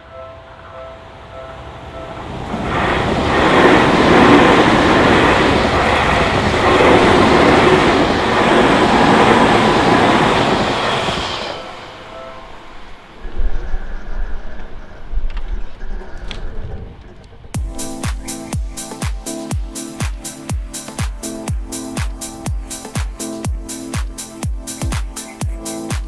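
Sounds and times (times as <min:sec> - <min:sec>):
level crossing warning bell: 0:00.0 - 0:06.0, 0:11.5 - 0:13.2
train wheels on rails: 0:01.0 - 0:13.2.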